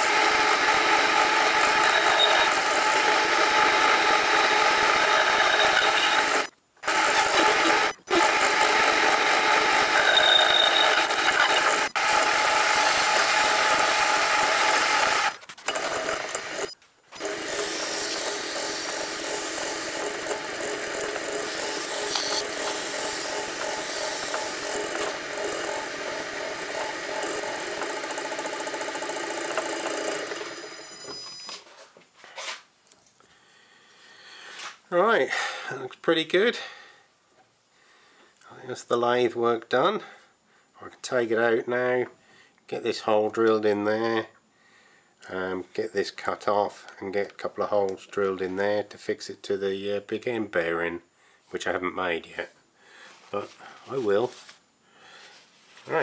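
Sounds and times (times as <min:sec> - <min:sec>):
metal rubbing on turning work: 0:00.0 - 0:30.8
metal lathe running: 0:00.0 - 0:30.9.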